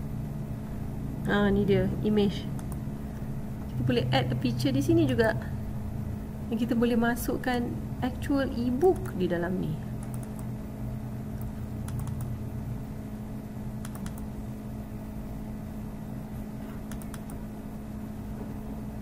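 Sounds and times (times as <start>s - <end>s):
low electrical hum: 0.0s - 19.0s
computer mouse clicks: 2.6s - 2.8s, 10.0s - 10.5s, 11.4s - 12.3s, 13.8s - 14.3s, 16.7s - 17.4s.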